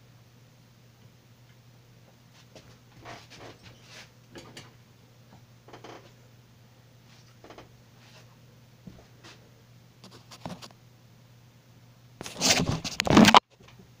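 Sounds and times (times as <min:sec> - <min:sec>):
steady low hum: 0:00.0 - 0:13.0
loud rustling scrape: 0:12.2 - 0:13.4.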